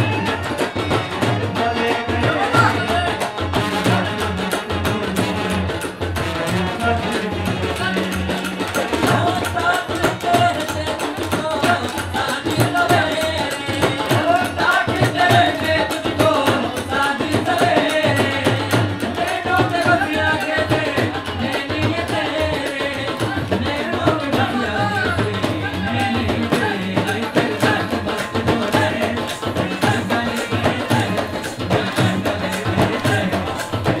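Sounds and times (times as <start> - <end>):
drums driving beat: 0.0 - 34.0
harmonium: 0.0 - 34.0
brass: 3.5 - 9.2.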